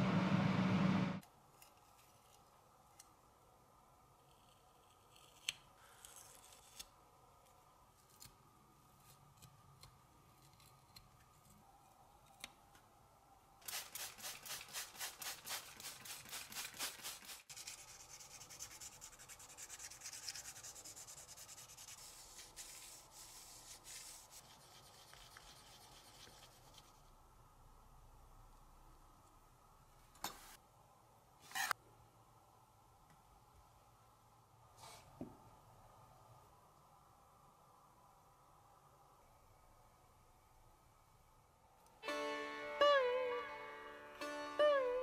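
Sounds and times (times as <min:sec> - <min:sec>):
sandpaper rubbing on tin: 0:13.7 - 0:26.3.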